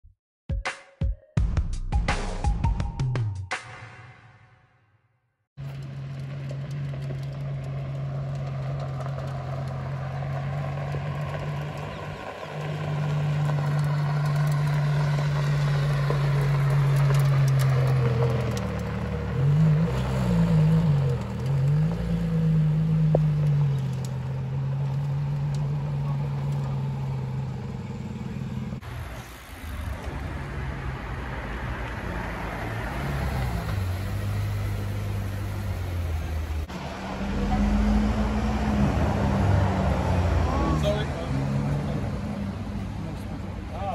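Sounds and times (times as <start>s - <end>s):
car engine idling: 5.6s - 31.2s, 31.8s - 38.4s
car engine revving: 5.6s - 43.9s.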